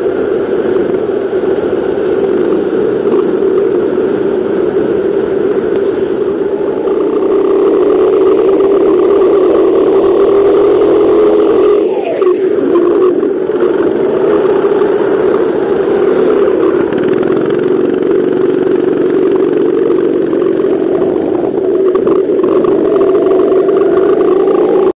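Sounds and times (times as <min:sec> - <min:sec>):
go-kart engine running hard: 0:00.0 - 0:24.9.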